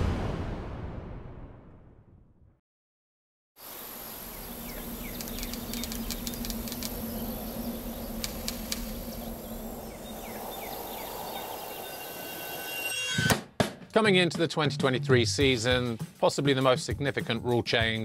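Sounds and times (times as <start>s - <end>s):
insects trilling: 3.6s - 12.9s
steady low hum: 3.9s - 11.8s
scattered clicks: 5.1s - 7.1s, 8.2s - 9.2s.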